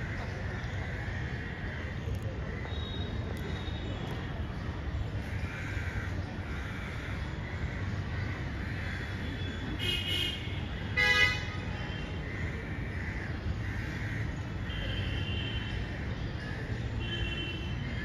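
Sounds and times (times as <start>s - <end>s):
traffic hum: 0.0s - 18.0s
crows cawing: 5.2s - 9.6s, 12.2s - 14.7s
vehicle horn toot: 9.8s - 11.6s.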